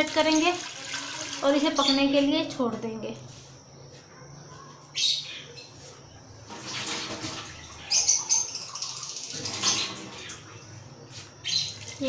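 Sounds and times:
water pouring and splashing: 0.0s - 1.7s, 6.5s - 7.8s, 8.6s - 10.4s, 11.7s - 12.0s.

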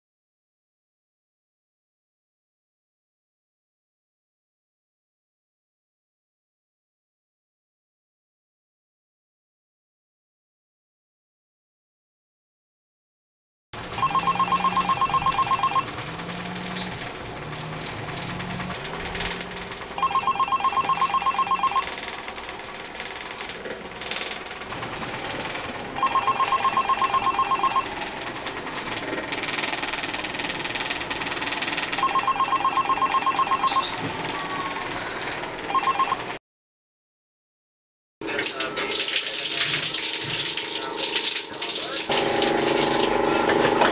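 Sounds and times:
trilling phone ringtone: 14.0s - 15.9s, 20.0s - 21.9s, 26.0s - 28.0s, 32.0s - 34.9s, 35.7s - 36.4s.

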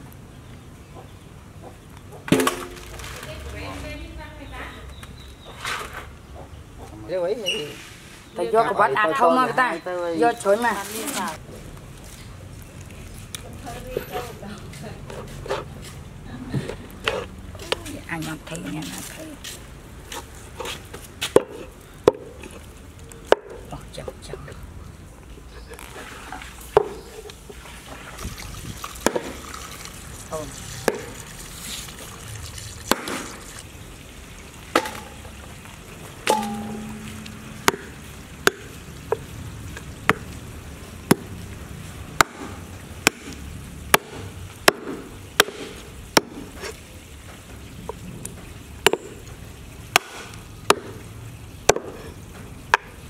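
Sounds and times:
cleaver chopping on wooden block: 21.3s - 22.4s, 29.0s - 29.4s, 30.8s - 31.2s, 36.3s - 39.2s, 42.2s - 46.5s, 48.8s - 49.2s, 49.9s - 51.0s, 51.7s - 52.0s.

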